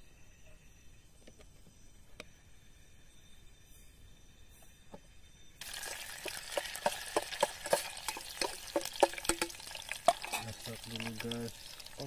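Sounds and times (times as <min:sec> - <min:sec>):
garlic sizzling in hot oil: 0:05.6 - 0:12.0
spoon scraping a metal pot: 0:05.9 - 0:11.1.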